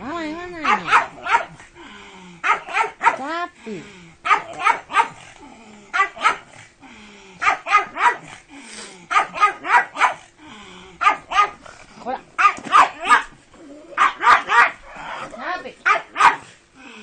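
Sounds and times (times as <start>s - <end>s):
dog barking in short bursts: 0.6s - 1.6s, 2.4s - 3.2s, 4.3s - 5.2s, 6.0s - 6.4s, 9.1s - 10.2s, 14.0s - 14.8s, 15.9s - 16.5s.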